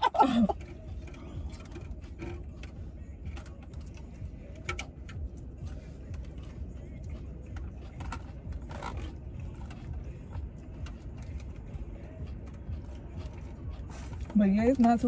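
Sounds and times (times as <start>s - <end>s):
car cabin rumble: 0.0s - 15.0s
plastic fork scraping container: 7.8s - 9.9s.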